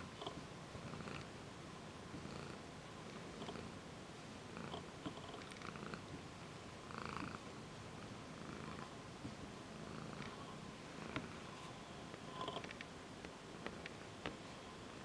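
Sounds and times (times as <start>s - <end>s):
cat purring: 0.0s - 1.4s, 2.0s - 3.8s, 4.4s - 12.9s
soft clicks: 12.1s - 14.4s.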